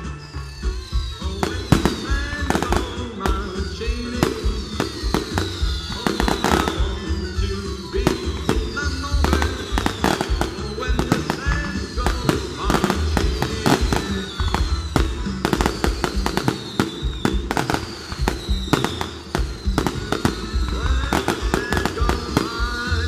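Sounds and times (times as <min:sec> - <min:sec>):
falling firework whistles: 0:00.0 - 0:23.0
firework bursts and crackles: 0:00.0 - 0:23.0
loud music with singing: 0:00.0 - 0:23.0.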